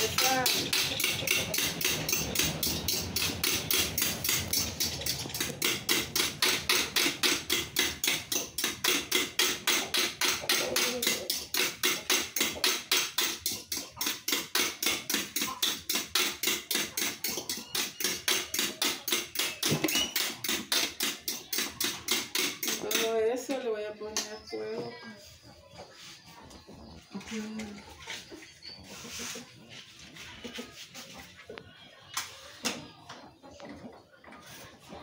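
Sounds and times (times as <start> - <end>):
fork beating eggs in bowl: 0.0 - 23.1.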